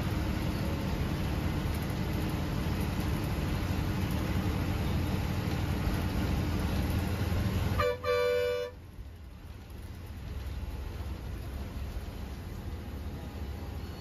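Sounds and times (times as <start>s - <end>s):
bus engine rumble: 0.0s - 14.0s
vehicle horn toots: 7.8s - 8.8s.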